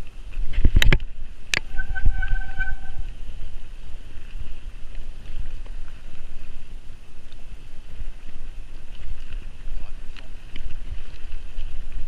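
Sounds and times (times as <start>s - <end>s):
bike tyres rumbling and rattling: 0.0s - 12.0s
wind buffeting microphone: 0.0s - 12.0s
short steady squeal: 1.6s - 3.2s.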